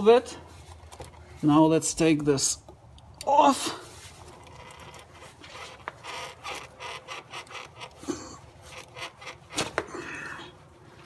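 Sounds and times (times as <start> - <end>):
rubber duct rubbing and scraping: 3.8 - 9.9.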